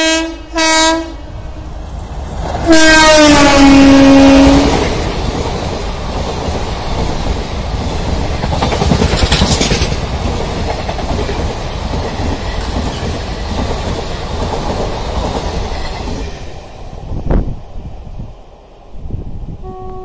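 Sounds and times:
train horn: 0.0s - 1.7s, 2.6s - 5.0s, 19.6s - 20.0s
train coaches rushing past: 0.0s - 19.0s
wheels clattering over rail joints: 4.9s - 16.2s.

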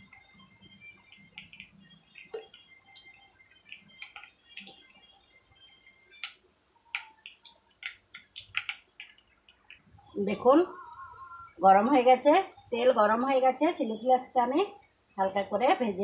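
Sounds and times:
oil popping and crackling: 0.0s - 5.0s, 5.8s - 10.3s.

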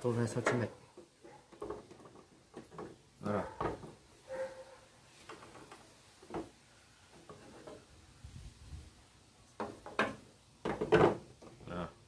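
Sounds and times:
plastic rubbing and handling: 5.1s - 8.2s.

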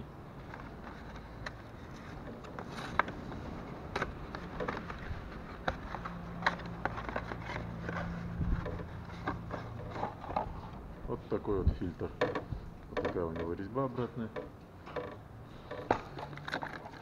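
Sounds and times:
cardboard box ticks and rustles: 0.4s - 10.8s.

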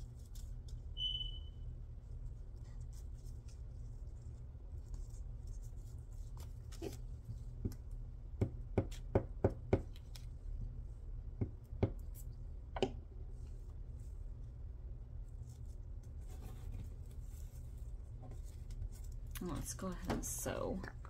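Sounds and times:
hands handling paper and fabric: 0.0s - 1.0s, 1.6s - 8.0s, 13.3s - 21.0s
low steady hum: 0.0s - 21.0s.

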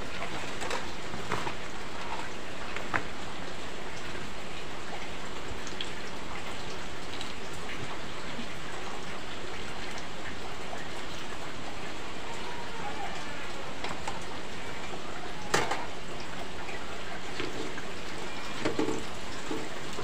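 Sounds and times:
deep-frying sizzle with pops: 0.0s - 11.0s, 15.4s - 16.6s, 17.2s - 20.0s.

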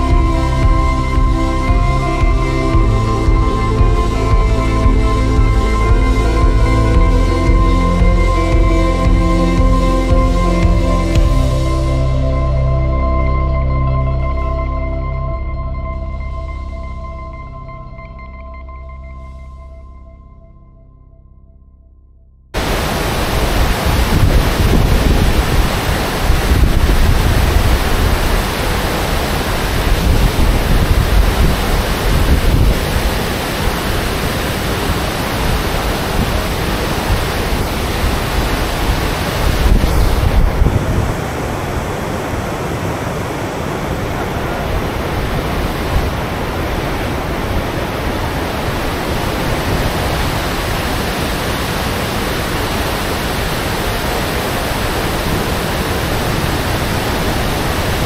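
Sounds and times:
waterfall rushing over rocks: 0.0s - 12.2s, 22.6s - 58.0s
wind buffeting microphone: 22.6s - 58.0s.

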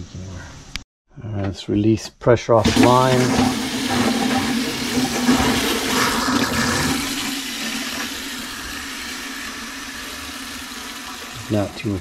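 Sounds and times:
water rushing from a faucet: 2.6s - 12.0s.

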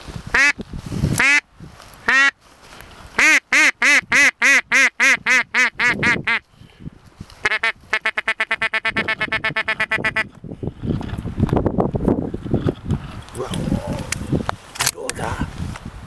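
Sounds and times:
duck quacking: 3.2s - 6.4s, 7.4s - 10.3s.

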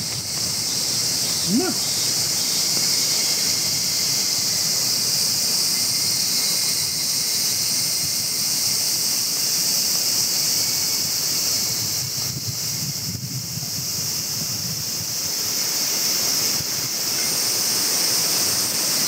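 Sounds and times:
insect chorus buzzing: 0.0s - 19.0s.

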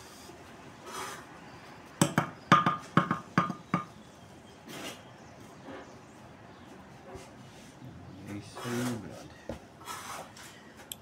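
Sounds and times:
mortar scraping: 8.4s - 10.5s.

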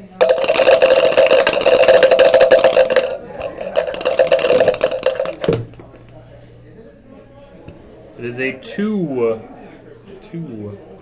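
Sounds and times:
dice rattling in plastic cup: 0.0s - 5.6s.

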